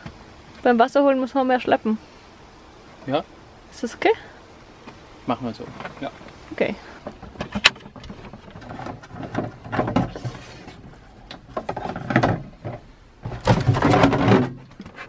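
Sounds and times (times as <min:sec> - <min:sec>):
plastic canister knocking and scraping: 0:07.0 - 0:15.0.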